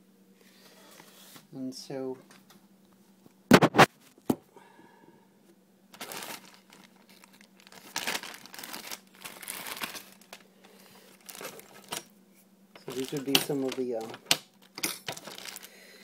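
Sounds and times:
plastic bags crinkling: 0:05.9 - 0:12.1, 0:12.8 - 0:16.0.

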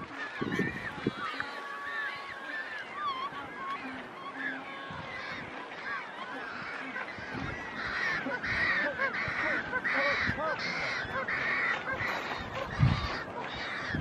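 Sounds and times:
penguin braying: 0:00.4 - 0:14.0.

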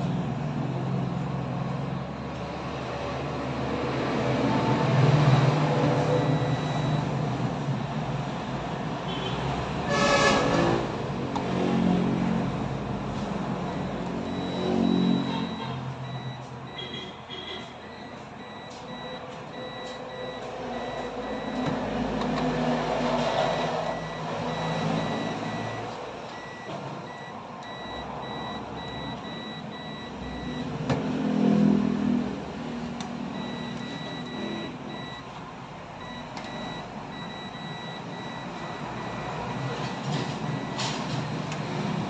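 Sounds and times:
large vehicle engine: 0:00.0 - 0:16.8, 0:17.7 - 0:42.0
reversing alarm beeping: 0:06.0 - 0:07.2, 0:13.6 - 0:21.8, 0:23.2 - 0:30.7, 0:33.4 - 0:35.3, 0:36.0 - 0:41.2.

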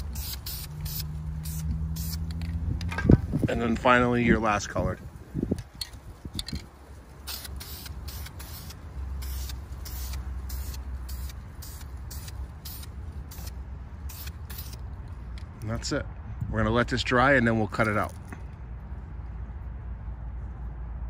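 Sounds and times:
spray can hissing in bursts: 0:00.0 - 0:02.4, 0:07.2 - 0:14.9.

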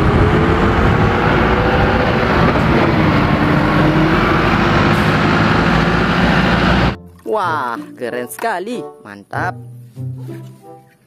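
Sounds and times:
bus engine and road rumble: 0:00.0 - 0:07.0.

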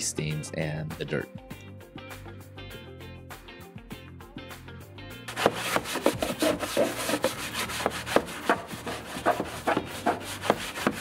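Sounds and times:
hand scrubbing wet plastic: 0:05.3 - 0:11.0.

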